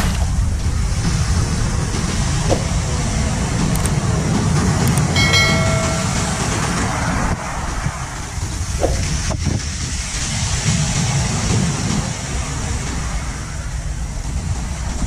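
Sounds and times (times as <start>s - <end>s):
scooter engine and wind rumble: 0.0s - 15.0s
short ringing beep: 5.2s - 6.8s.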